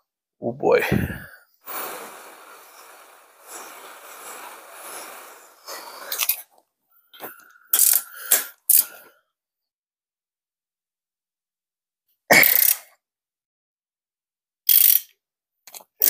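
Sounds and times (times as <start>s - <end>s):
aerosol spray hissing: 1.6s - 6.3s
wrench on metal studs: 14.7s - 15.1s.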